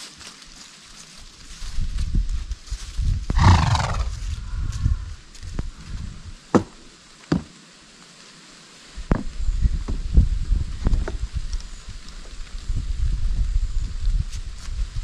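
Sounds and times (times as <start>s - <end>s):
horse neighing: 3.4s - 4.2s
hooves striking wooden pallet: 6.5s - 7.5s.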